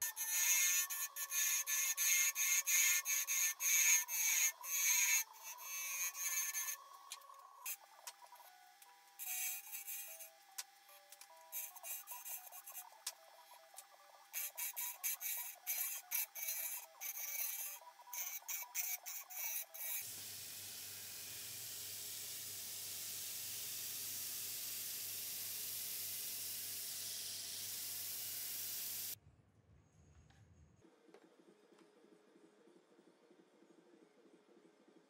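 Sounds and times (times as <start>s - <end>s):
chisel scraping spinning wood: 0.0s - 7.8s
lathe humming: 0.0s - 24.6s.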